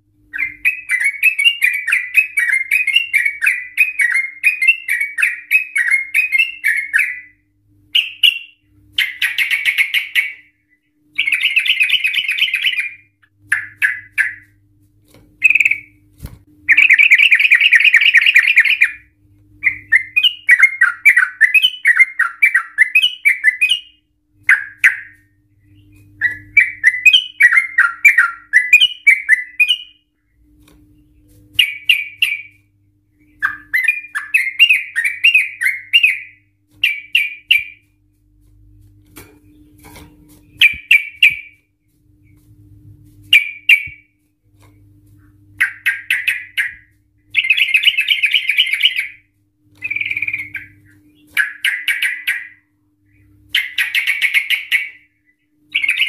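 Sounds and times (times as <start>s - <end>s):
bird singing chattering phrases: 16.7s - 19.0s.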